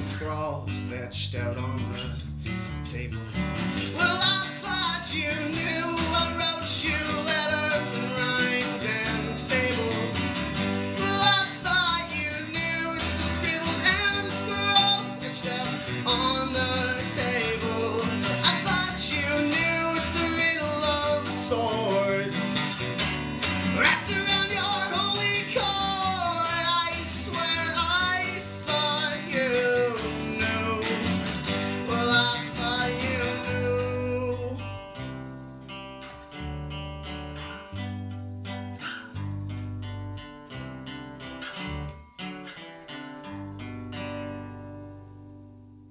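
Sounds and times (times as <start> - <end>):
electric bass: 0.0 - 42.1
acoustic guitar: 0.0 - 45.9
person singing: 2.9 - 34.8.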